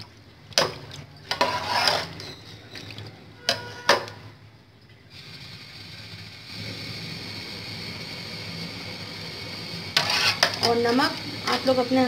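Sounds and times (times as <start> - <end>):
spoon scraping pot: 0.7 - 4.2, 9.9 - 10.9.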